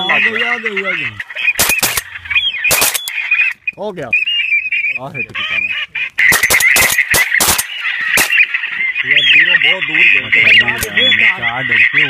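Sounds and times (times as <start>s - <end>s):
waterfowl high calls: 0.0s - 12.0s
sharp cracks: 1.5s - 2.1s, 2.7s - 3.6s, 6.1s - 8.6s.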